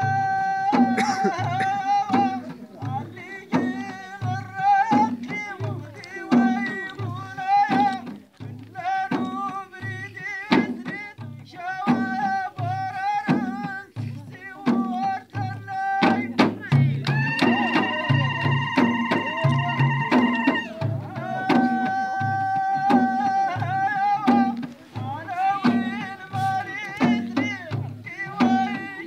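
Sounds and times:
low drum beat: 0:00.0 - 0:29.0
men singing together: 0:00.0 - 0:29.0
sharp percussive strikes: 0:16.0 - 0:29.0.

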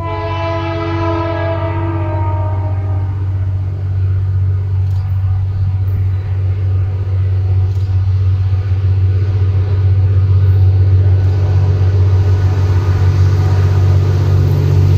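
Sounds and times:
locomotive horn: 0:00.0 - 0:04.0
diesel locomotive engine rumble: 0:00.0 - 0:14.9.

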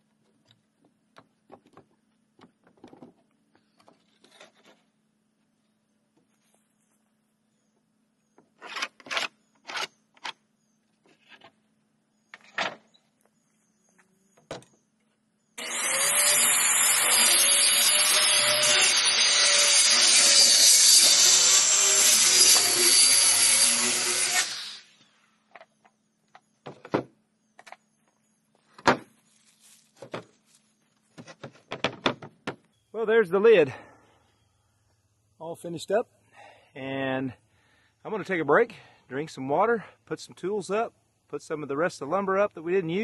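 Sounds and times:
circular saw cutting wood: 0:15.6 - 0:25.2.

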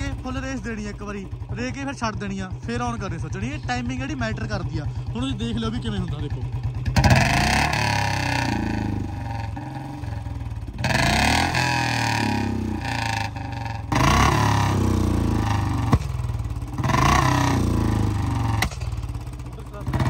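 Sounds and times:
motorcycle engine revving: 0:00.0 - 0:20.0
exhaust pops: 0:15.4 - 0:17.7, 0:18.4 - 0:20.0.

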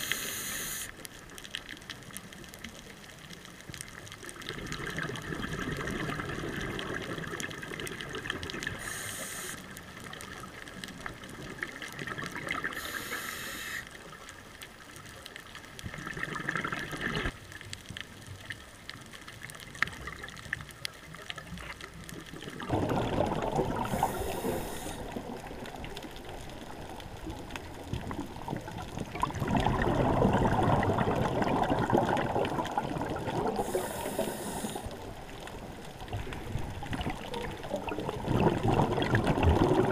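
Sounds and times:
regulator inhalation hiss: 0:00.0 - 0:00.9, 0:08.8 - 0:09.6, 0:12.8 - 0:13.9, 0:23.9 - 0:25.1, 0:33.5 - 0:35.0
underwater exhale bubbling: 0:04.4 - 0:09.7, 0:11.5 - 0:13.8, 0:15.9 - 0:17.4, 0:22.2 - 0:39.9.

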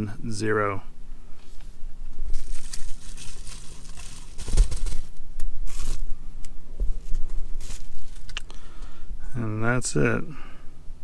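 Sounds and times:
bubble-wrap bag crinkling: 0:02.2 - 0:06.2, 0:06.9 - 0:08.5.

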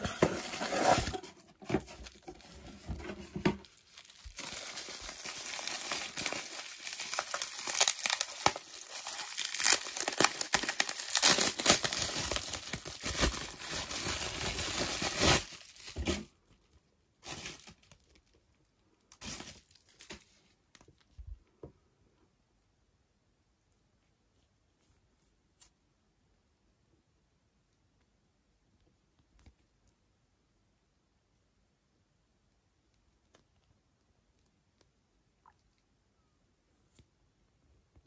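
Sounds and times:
soft handling sounds: 0:00.0 - 0:10.3
bubble wrap crinkling: 0:00.0 - 0:16.6, 0:17.2 - 0:18.4, 0:19.1 - 0:20.5.

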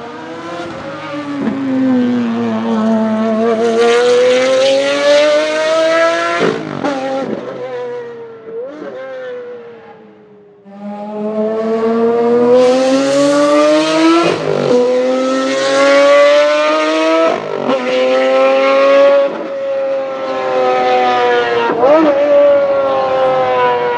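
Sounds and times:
racing engine accelerating: 0:00.0 - 0:23.9.

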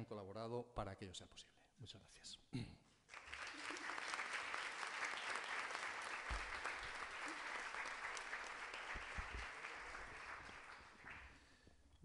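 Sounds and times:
audience clapping: 0:03.1 - 0:11.7.

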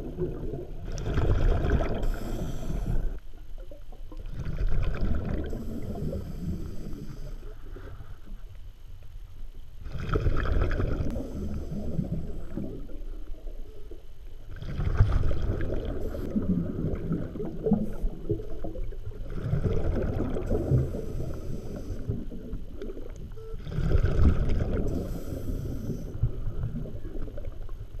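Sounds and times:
exhaled bubbles rushing: 0:00.0 - 0:02.4, 0:04.2 - 0:06.2, 0:09.8 - 0:13.1, 0:14.5 - 0:25.4
regulator hiss: 0:02.0 - 0:03.2, 0:05.5 - 0:07.8, 0:20.5 - 0:22.2, 0:24.8 - 0:26.3.

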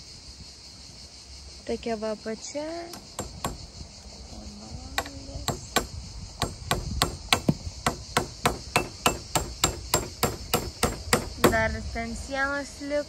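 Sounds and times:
hammer driving nails: 0:02.9 - 0:03.6, 0:05.0 - 0:11.6.

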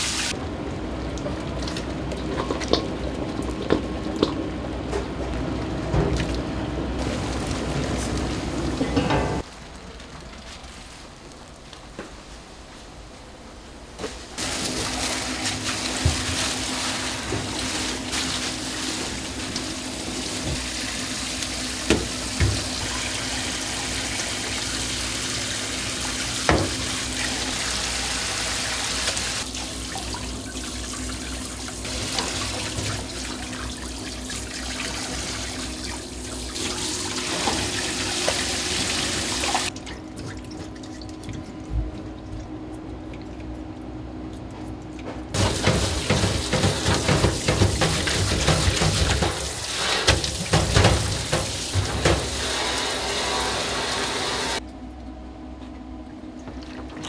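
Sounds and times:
tap water running into sink: 0:14.4 - 0:40.6, 0:45.4 - 0:54.6.

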